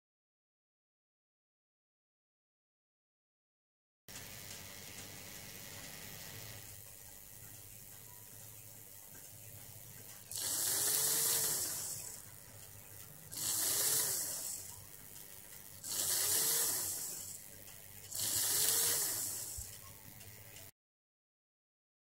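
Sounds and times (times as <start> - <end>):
model train motor whirring: 4.1 - 20.7.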